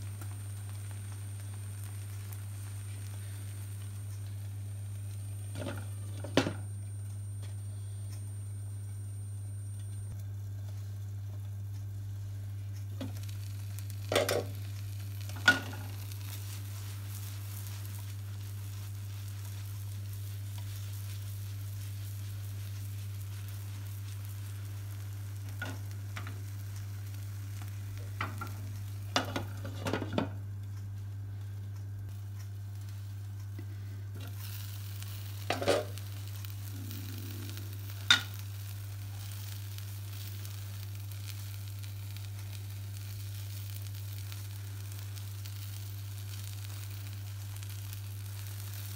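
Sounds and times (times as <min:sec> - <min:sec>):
omelette sizzling in a frying pan: 0:00.0 - 0:48.9
steady low hum: 0:00.0 - 0:48.9.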